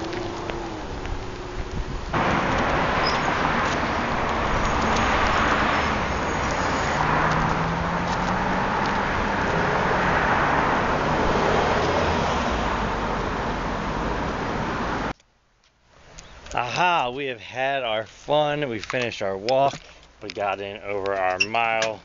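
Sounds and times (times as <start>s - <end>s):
road traffic rush: 0.0s - 15.2s.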